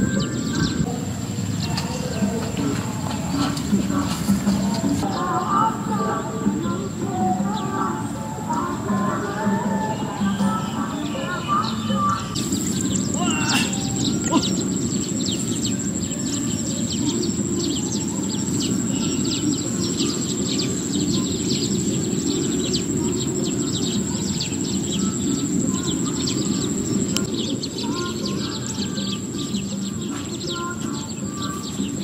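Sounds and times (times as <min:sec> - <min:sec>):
bird chirps: 0:09.9 - 0:32.0
thin high-pitched whine: 0:10.2 - 0:30.7
low rushing noise: 0:12.3 - 0:28.0.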